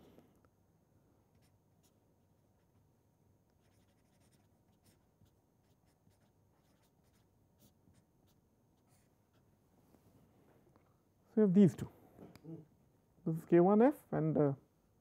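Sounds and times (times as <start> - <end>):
marker pen writing on paper: 1.3 - 2.0, 3.4 - 9.5.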